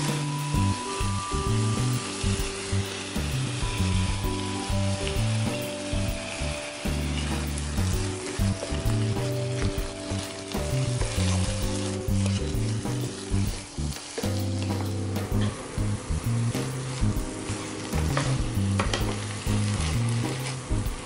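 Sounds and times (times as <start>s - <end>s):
meat and onion sizzling in a pan: 0.0s - 21.0s
soft background music: 0.0s - 21.0s
wooden spatula stirring: 4.8s - 15.0s, 16.7s - 20.9s.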